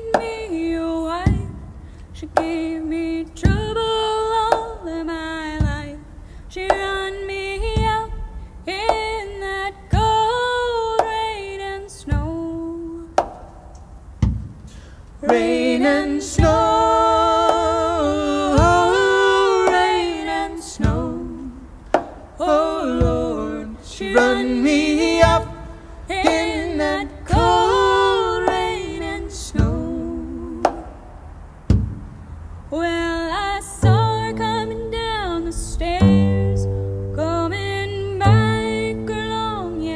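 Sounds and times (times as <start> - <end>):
woman singing folk song: 0.0 - 13.2, 15.2 - 30.9, 32.7 - 39.9
man singing harmony: 15.2 - 21.8, 22.4 - 30.7.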